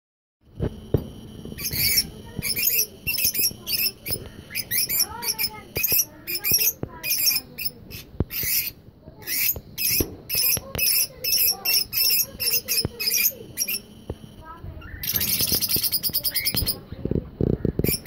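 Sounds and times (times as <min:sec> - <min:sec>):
lovebirds chirping and squeaking: 0:00.6 - 0:18.0
sharp bird clicks: 0:01.6 - 0:14.2, 0:14.9 - 0:16.8.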